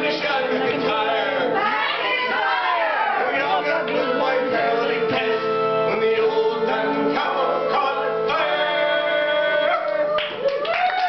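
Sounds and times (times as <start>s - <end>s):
man singing: 0.0s - 1.6s, 3.2s - 10.2s.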